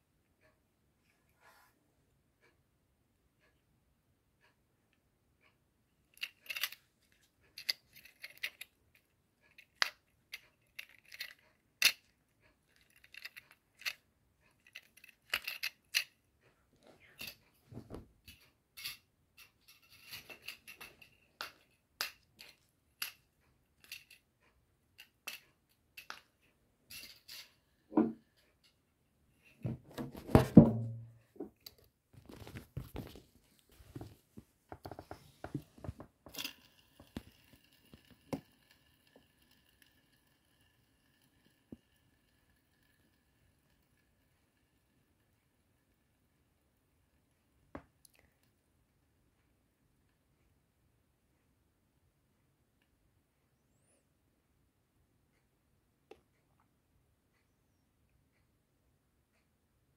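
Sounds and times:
rustling thump: 0:29.6 - 0:31.2.

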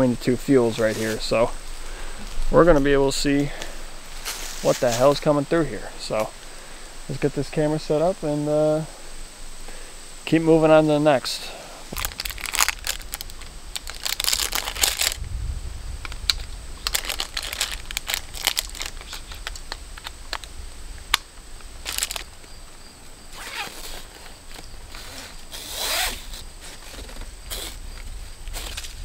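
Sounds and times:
strap scraping: 0:10.4 - 0:15.2, 0:23.3 - 0:29.0.

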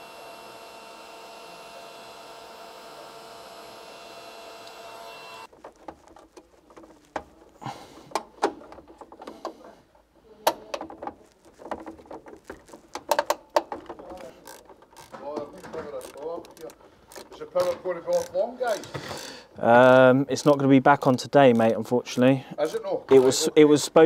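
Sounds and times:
heat gun whining: 0:00.0 - 0:05.5
cables rustling: 0:05.4 - 0:19.3.

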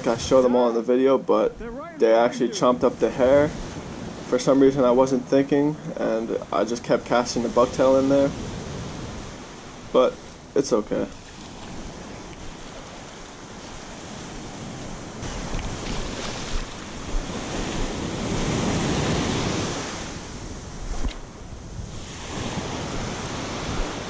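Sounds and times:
wind buffeting microphone: 0:01.4 - 0:05.1, 0:11.2 - 0:24.0
ocean surf breaking on sand: 0:01.6 - 0:24.0.

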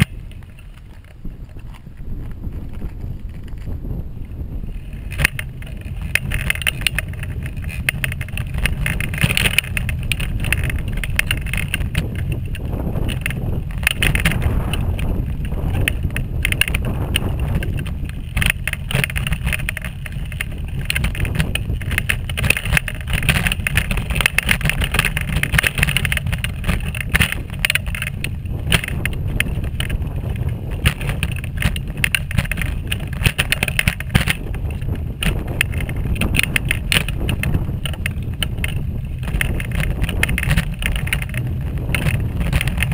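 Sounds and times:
wheelchair rolling along path: 0:00.0 - 0:42.9.

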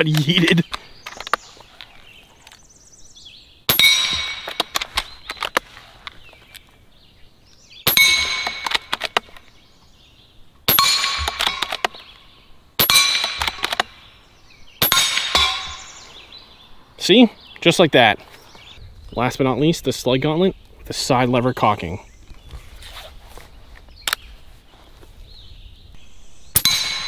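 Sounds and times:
swinging plates clinking: 0:03.7 - 0:04.8, 0:07.9 - 0:09.2, 0:14.8 - 0:16.2, 0:26.6 - 0:27.0
air rifle shots: 0:03.7 - 0:05.8, 0:07.8 - 0:09.4, 0:10.7 - 0:12.1, 0:12.8 - 0:14.1, 0:14.8 - 0:16.2, 0:26.5 - 0:27.0.

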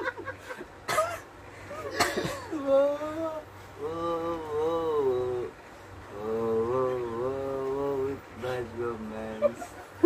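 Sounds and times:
person singing long wavering notes: 0:02.6 - 0:05.5.

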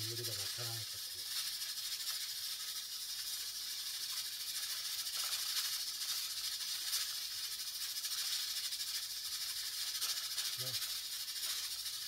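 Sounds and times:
pressure cooker steam hissing: 0:00.0 - 0:12.0.

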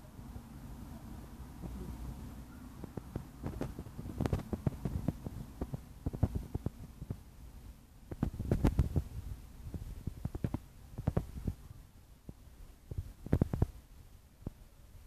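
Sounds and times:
low rumbling thumps on microphone: 0:02.8 - 0:07.4, 0:08.0 - 0:11.6.

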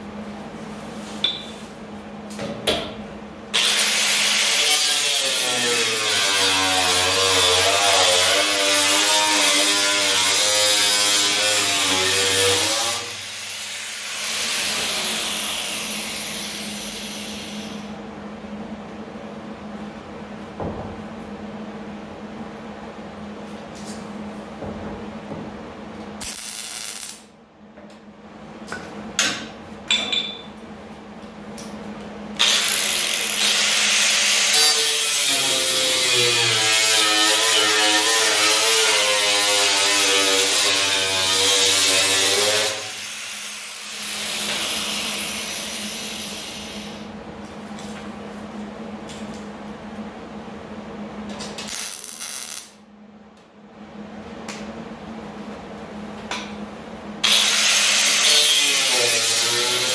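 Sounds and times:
angle grinder cutting steel: 0:03.6 - 0:15.4, 0:32.4 - 0:45.5, 0:57.2 - 0:59.9.

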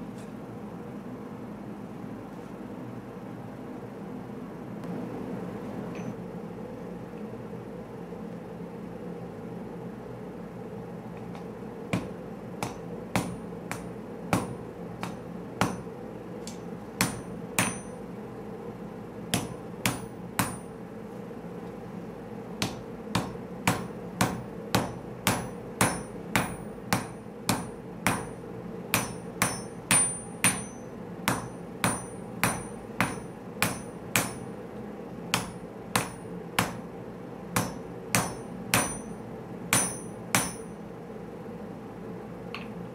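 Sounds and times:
hammer striking blade on anvil: 0:12.0 - 0:15.9, 0:16.5 - 0:18.0, 0:19.3 - 0:20.7, 0:22.6 - 0:28.4, 0:29.0 - 0:34.5, 0:35.3 - 0:36.8, 0:37.6 - 0:40.7.

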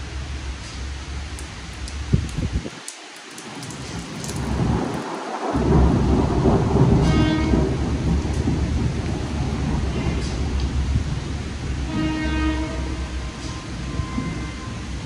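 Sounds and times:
steady rain: 0:00.0 - 0:15.0
thunder rumbling: 0:03.4 - 0:15.0.

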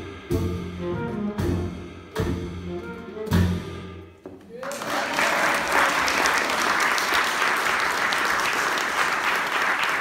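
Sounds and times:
audience applauding: 0:04.5 - 0:10.0.

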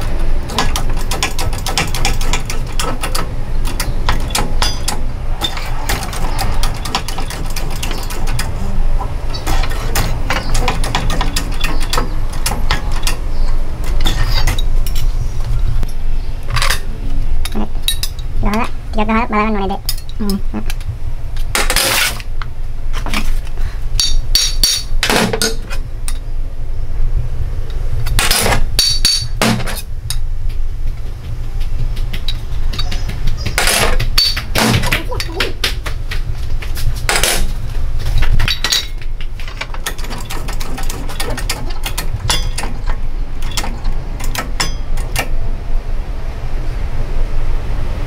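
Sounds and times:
steady low hum: 0:00.0 - 0:48.0
hammer striking metal: 0:03.8 - 0:08.2, 0:24.0 - 0:25.6, 0:28.1 - 0:29.8, 0:44.3 - 0:45.1.

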